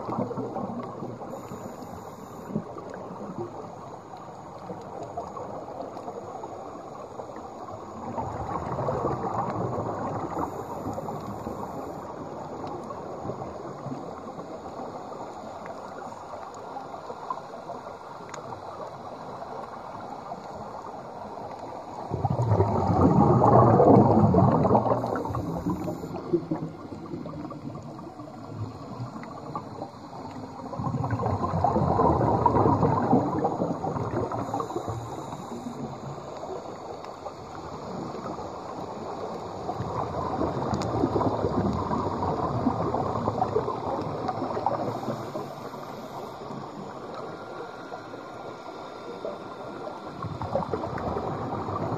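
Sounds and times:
scuba regulator bubbles gurgling: 0:00.0 - 0:51.9
steady underwater hiss: 0:00.0 - 0:51.9.

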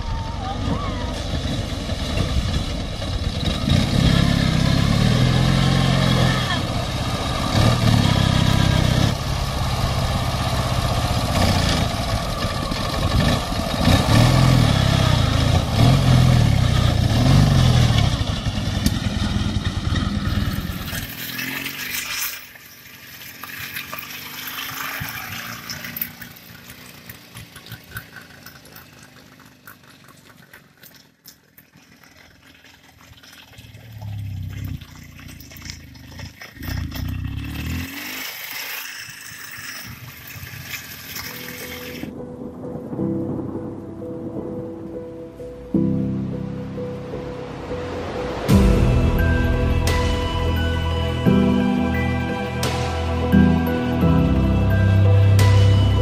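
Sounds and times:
motorcycle engine revving: 0:00.0 - 0:30.1, 0:33.6 - 0:42.1.

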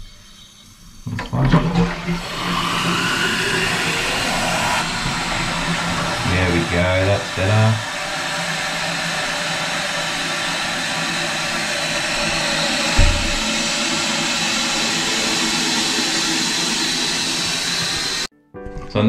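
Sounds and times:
water hissing through toilet valve: 0:00.0 - 0:18.3
short low thump: 0:12.9 - 0:13.6.

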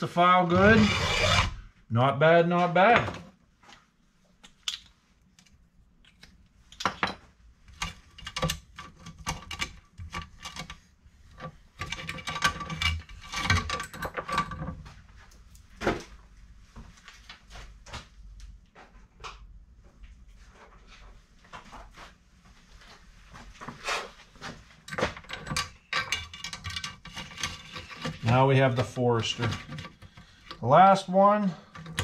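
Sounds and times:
saw chain metallic clicks and rattles: 0:11.8 - 0:14.7, 0:24.9 - 0:28.3.

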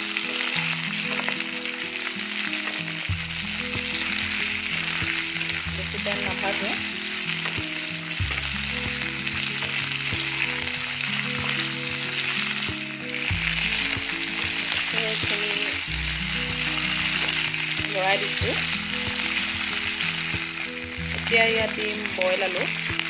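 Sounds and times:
background music with held notes: 0:00.0 - 0:23.0
peppers sizzling in oil: 0:00.0 - 0:23.0.

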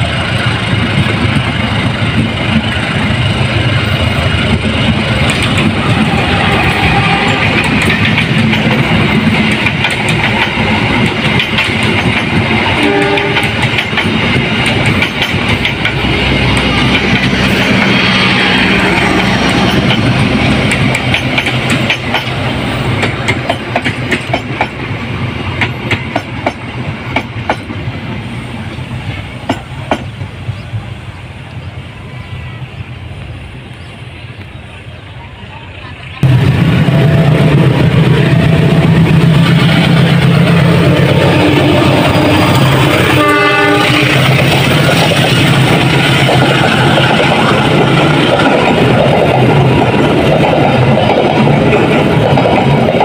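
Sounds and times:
train wheels rolling on rails: 0:00.0 - 0:53.0
wheels clacking over rail joints: 0:00.1 - 0:25.0, 0:25.6 - 0:27.9.

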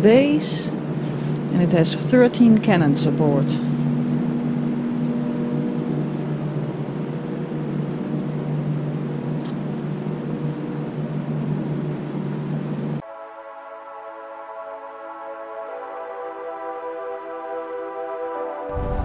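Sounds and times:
rushing background noise: 0:00.0 - 0:13.0
steady low hum: 0:00.0 - 0:13.0
soft ambient music: 0:00.0 - 0:19.0.

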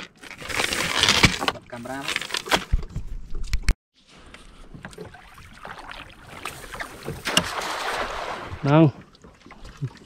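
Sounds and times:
water noise: 0:03.0 - 0:10.0.

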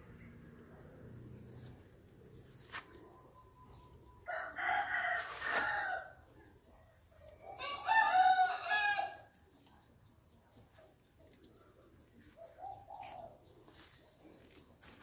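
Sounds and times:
rooster crowing: 0:04.2 - 0:06.2, 0:07.6 - 0:09.3.

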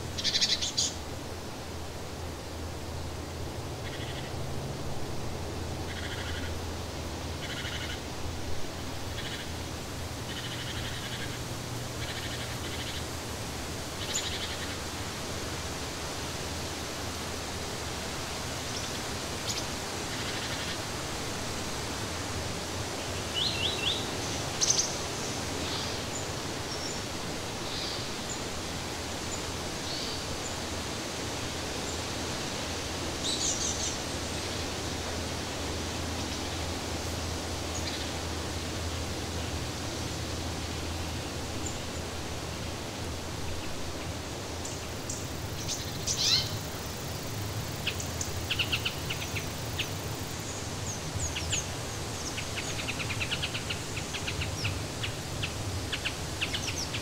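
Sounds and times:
outdoor hiss: 0:00.0 - 0:57.0.

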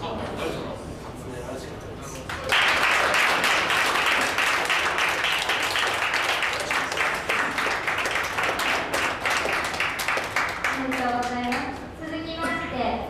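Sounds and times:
people applauding: 0:02.2 - 0:11.8.

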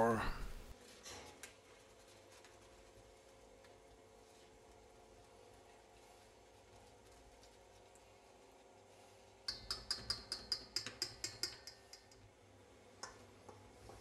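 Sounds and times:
whisk clicking against metal bowl: 0:09.4 - 0:12.3.

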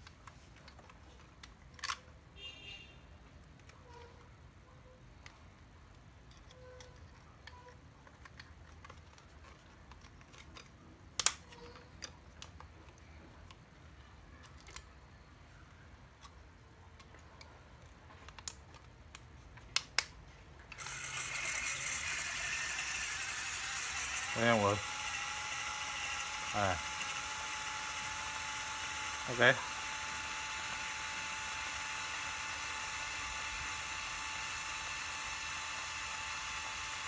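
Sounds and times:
electric motor running: 0:20.8 - 0:37.0.

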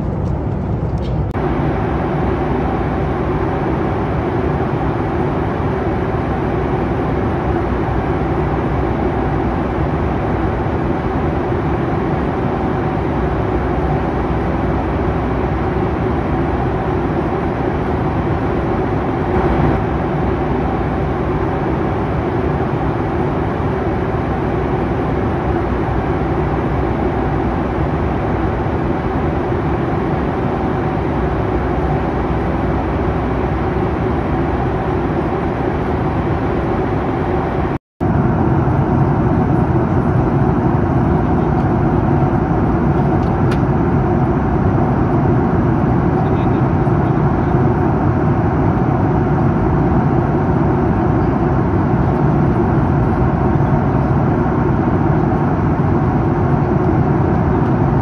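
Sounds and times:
air rushing over fuselage: 0:00.0 - 0:58.0
jet engines droning: 0:00.0 - 0:58.0
low steady hum: 0:00.0 - 0:58.0.

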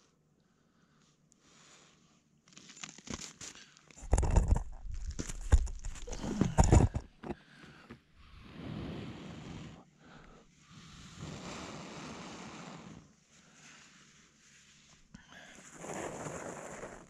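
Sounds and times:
breath blowing on ember: 0:08.2 - 0:14.0.

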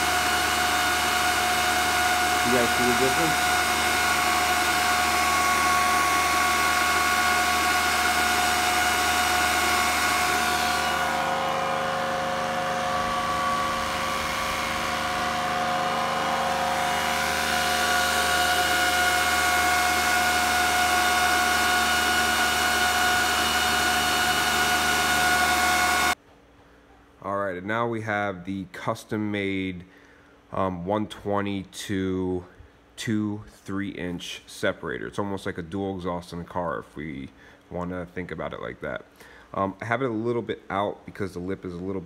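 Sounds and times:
cooling fans rushing air: 0:00.0 - 0:26.2
fan whining tones: 0:00.0 - 0:26.2.

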